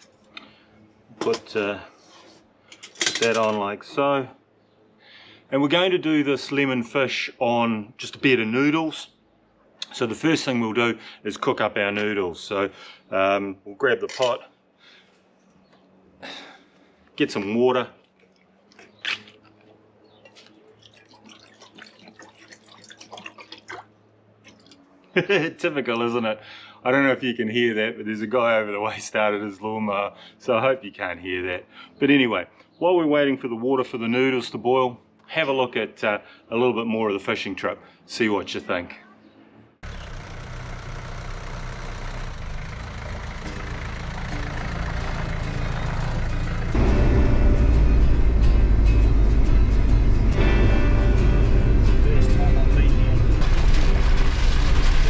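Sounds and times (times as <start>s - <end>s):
water pouring into metal pot: 20.8s - 24.8s
car driving on gravel: 39.8s - 50.6s, 51.2s - 55.0s
distant lawnmower: 39.8s - 55.0s
second car driving: 39.8s - 55.0s.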